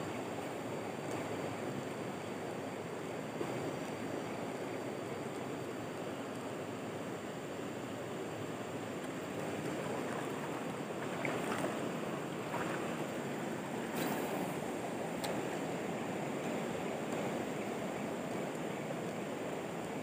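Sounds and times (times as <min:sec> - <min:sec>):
river flowing over rocks: 0:06.6 - 0:20.0.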